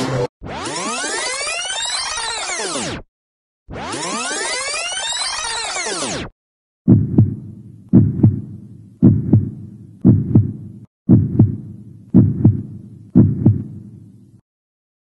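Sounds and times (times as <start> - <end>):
heartbeat thumps: 6.9 - 14.0.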